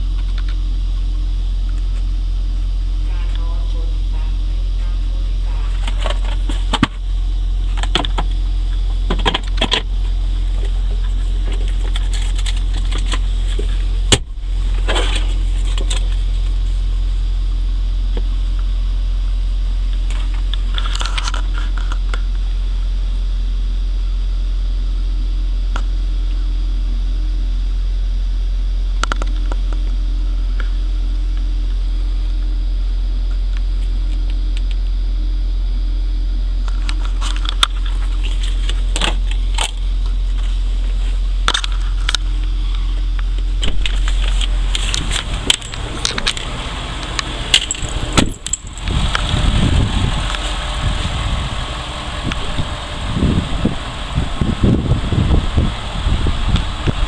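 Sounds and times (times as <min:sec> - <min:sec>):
low rumble inside vehicle cab: 0:00.0 - 0:57.0
console clicks and rustles: 0:43.6 - 0:49.4.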